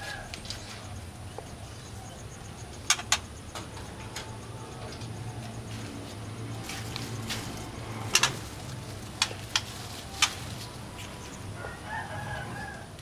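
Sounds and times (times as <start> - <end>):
steady low hum: 0.0 - 13.0
bird clicking call notes: 9.1 - 10.7.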